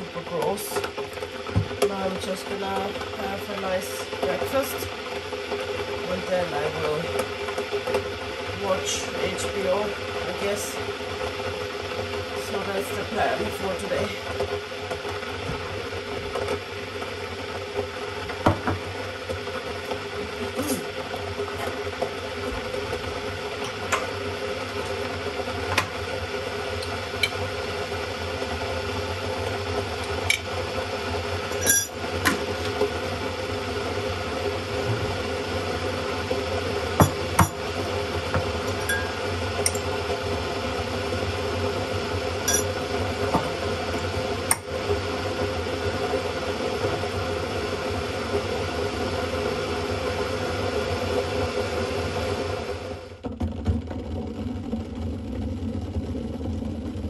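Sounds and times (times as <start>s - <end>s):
electric kettle heating water: 0.0s - 57.0s
glass and dishes clinking: 31.6s - 32.0s, 38.8s - 39.8s, 42.5s - 42.7s.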